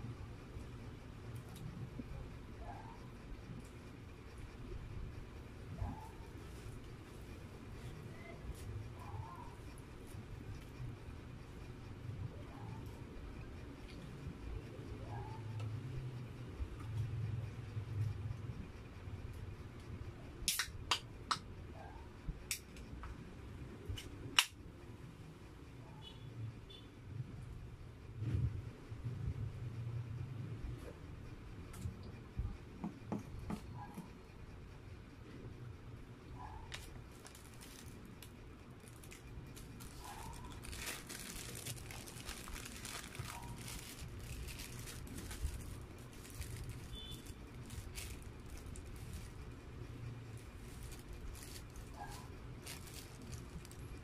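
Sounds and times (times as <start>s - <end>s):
plastic bag crinkling: 37.1s - 38.2s, 38.8s - 49.4s, 50.4s - 54.0s.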